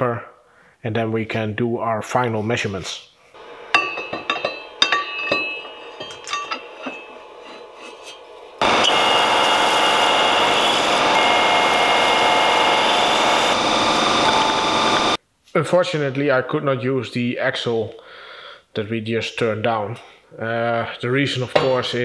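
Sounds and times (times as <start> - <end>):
metal lathe cutting: 3.4 - 15.2
metal clinks and taps: 3.7 - 7.1.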